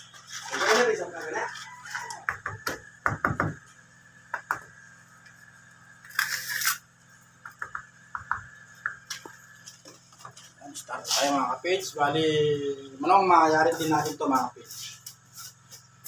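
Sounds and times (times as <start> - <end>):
tool scraping cement: 6.1 - 6.8
hand tool knocking on cement: 7.4 - 9.1.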